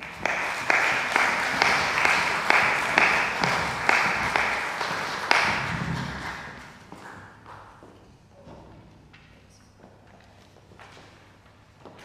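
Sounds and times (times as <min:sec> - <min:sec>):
audience applause: 0:00.0 - 0:07.2.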